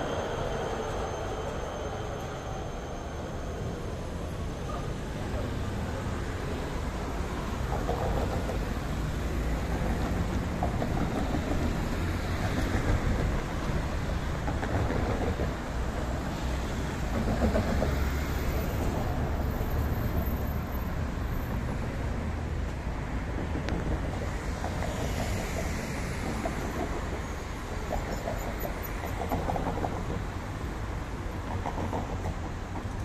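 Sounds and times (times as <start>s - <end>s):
tram rumbling: 0.0s - 33.0s.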